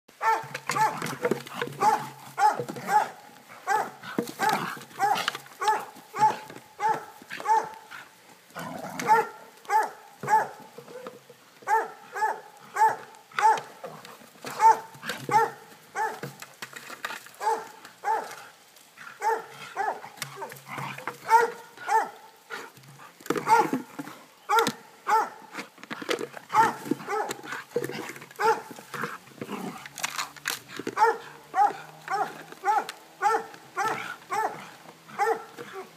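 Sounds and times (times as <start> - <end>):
dog barking: 0.2 - 1.0, 1.8 - 7.8, 9.0 - 11.0, 11.6 - 13.7, 14.6 - 16.2, 17.4 - 18.4, 19.2 - 20.5, 21.2 - 22.2, 23.4 - 23.8, 24.5 - 25.4, 26.5 - 27.4, 28.4 - 28.7, 31.0 - 35.9.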